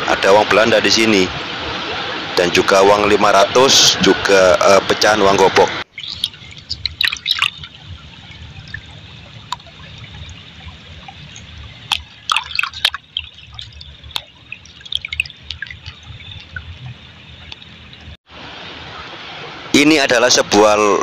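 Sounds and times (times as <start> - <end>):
stream rushing: 0.0 - 21.0
water dripping and splashing: 5.8 - 18.2.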